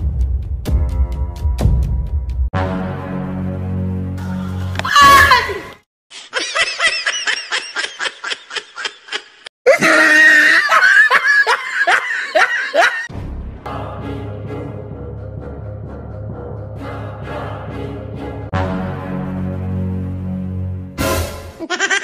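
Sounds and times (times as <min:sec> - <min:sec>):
background music: 0:00.0 - 0:05.8, 0:13.1 - 0:21.7
high-pitched scream: 0:04.8 - 0:05.7
rhythmic laughter: 0:06.2 - 0:10.0, 0:10.6 - 0:13.1, 0:21.6 - 0:22.0.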